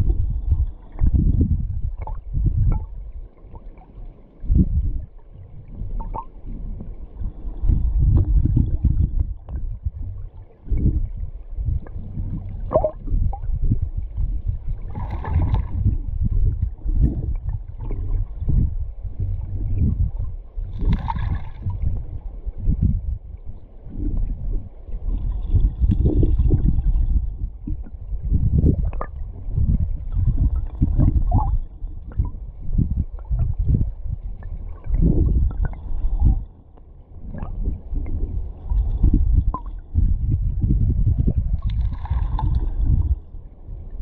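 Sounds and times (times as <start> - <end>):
muffled underwater river current: 0.0 - 44.0.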